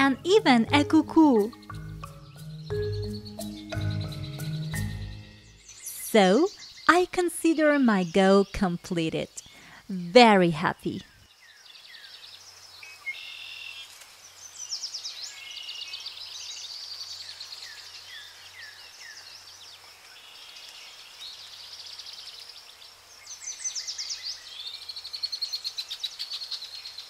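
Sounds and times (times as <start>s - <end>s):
songbirds singing and trilling: 0.0s - 27.0s.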